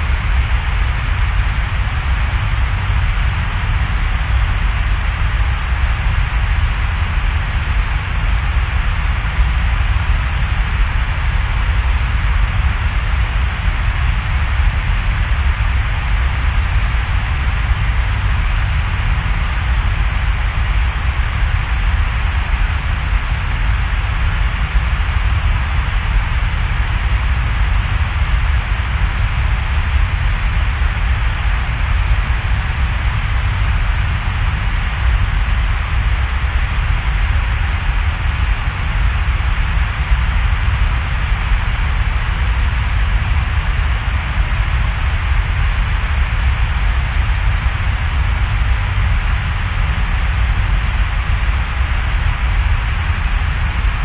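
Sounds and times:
steady low rushing noise: 0.0s - 54.0s.

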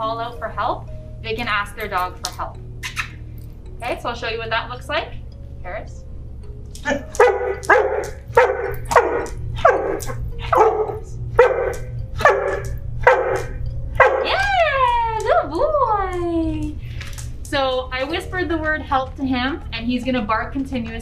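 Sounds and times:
dog barking: 6.9s - 14.4s.

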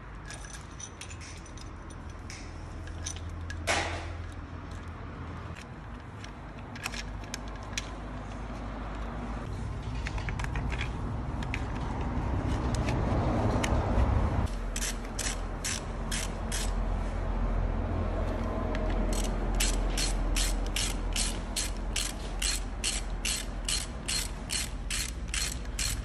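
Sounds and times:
metal clicks and rattles: 0.2s - 9.0s
ratchet wrench clicking: 14.5s - 16.8s, 18.8s - 26.0s.

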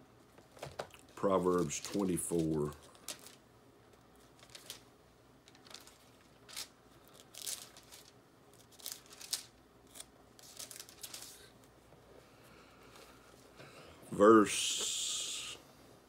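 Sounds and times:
book pages turning: 4.2s - 11.8s.

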